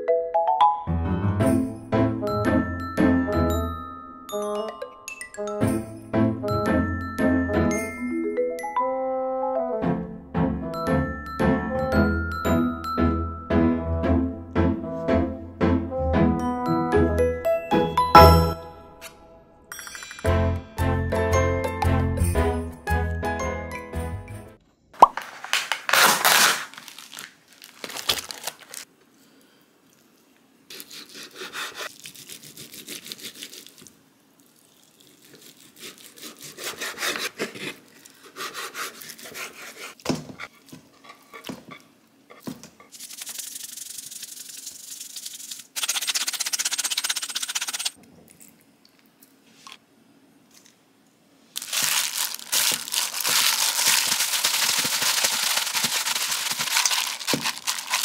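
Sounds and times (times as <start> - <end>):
knife cutting or scraping: 30.7 - 33.9, 35.0 - 48.0
rubbing and handling noises: 35.1 - 48.0, 51.6 - 58.0.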